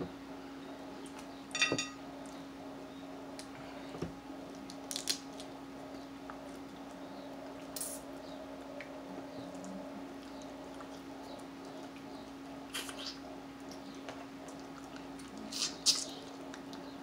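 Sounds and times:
low hum: 0.0s - 4.6s
ringing clink: 1.5s - 2.0s
crab shell snapping: 4.7s - 5.5s.

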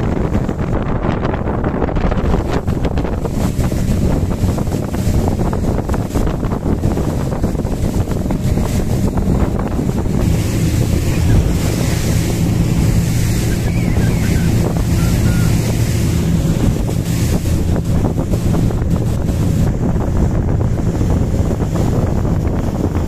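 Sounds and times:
boat engine drone: 0.0s - 23.0s
water rushing past hull: 0.0s - 23.0s
wind buffeting microphone: 0.0s - 23.0s.

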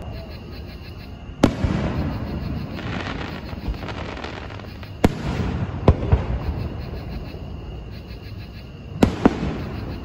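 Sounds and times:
fireworks rumble and crackle: 0.0s - 10.0s.

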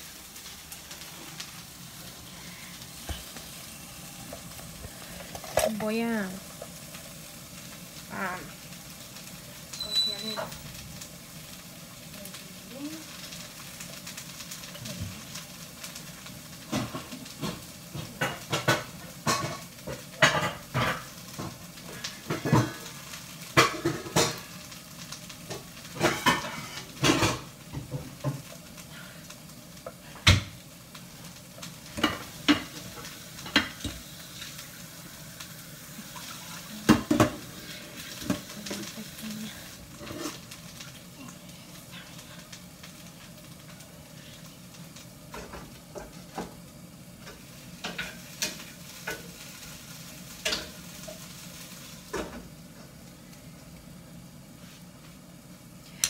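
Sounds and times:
vegetables sizzling in a pan: 0.0s - 56.0s
pots and utensils clattering: 4.3s - 6.8s, 16.6s - 24.6s, 25.4s - 28.6s, 31.8s - 34.6s, 36.2s - 40.6s, 45.3s - 46.6s, 47.2s - 49.4s, 50.3s - 51.4s, 52.0s - 52.5s.

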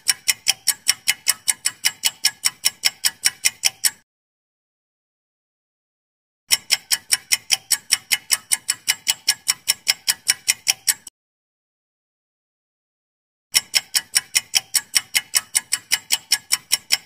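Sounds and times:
timer ticking: 0.0s - 4.0s, 6.5s - 11.1s, 13.5s - 17.0s.

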